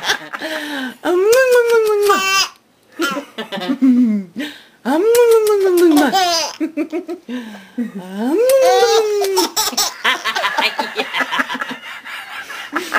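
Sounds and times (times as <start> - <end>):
woman laughing: 3.0 - 4.4, 5.1 - 7.2, 7.8 - 12.9
baby giggling and squealing: 8.5 - 10.0.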